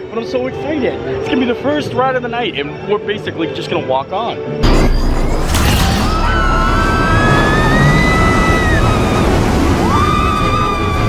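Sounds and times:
riders screaming: 6.0 - 11.0
roller coaster track rumble: 6.1 - 11.0.

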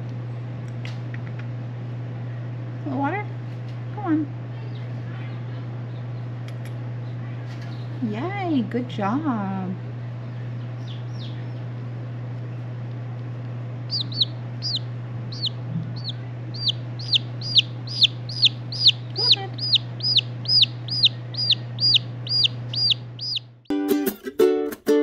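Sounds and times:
steady low hum: 0.0 - 23.7
chick peeping: 10.2 - 11.7, 13.9 - 23.6.

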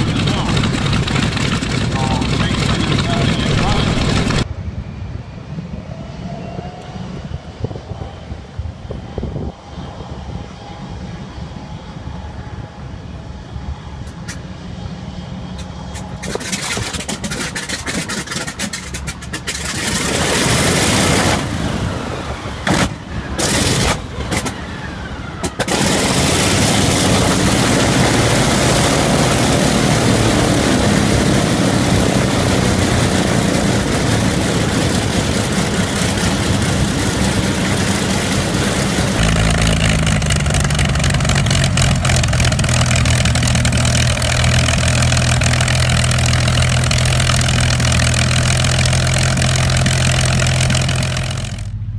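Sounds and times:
radial aircraft engine starting: 0.0 - 4.5, 15.4 - 51.9
aircraft engine running: 0.0 - 51.9.

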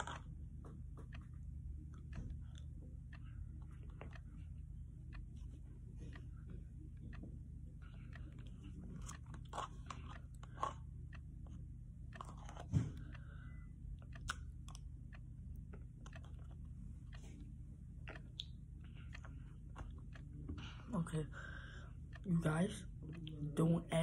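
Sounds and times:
person chewing and mouth smacks: 7.9 - 13.2, 14.0 - 20.7.

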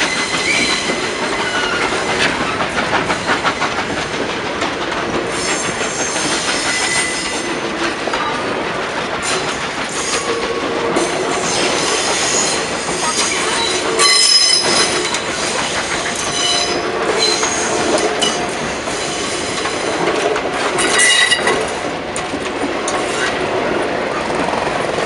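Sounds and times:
train wheels squealing on rails: 0.0 - 4.2, 5.3 - 8.5, 9.2 - 21.9, 22.9 - 23.5
rumble of wheels on rail: 0.0 - 25.0.

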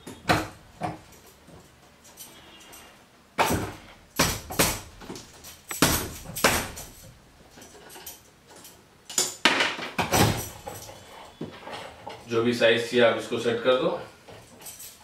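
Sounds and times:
metal parts clanking and rattling: 5.0 - 12.4, 14.2 - 15.0.

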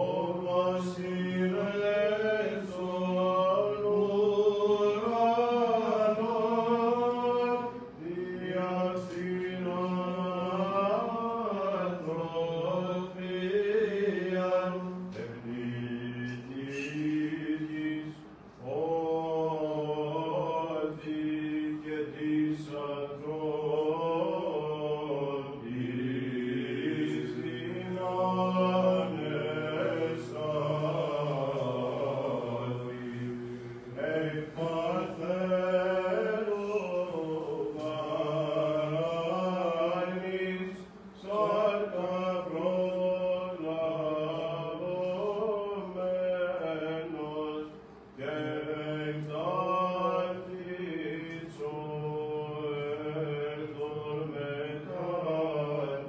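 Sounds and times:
chant with held low drone: 0.0 - 56.0.

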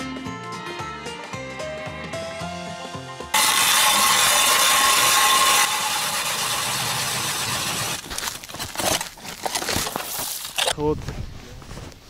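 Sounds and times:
ice auger grinding: 3.3 - 10.7
ice and slush crunching: 6.6 - 10.8.

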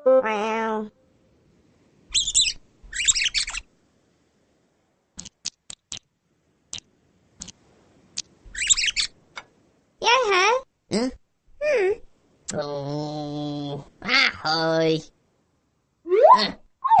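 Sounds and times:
bird-like chirping and twittering: 2.1 - 3.7, 8.5 - 9.2.

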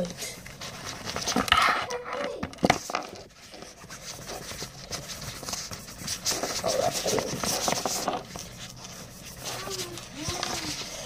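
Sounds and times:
cotton swab scrubbing fabric: 3.5 - 11.0.

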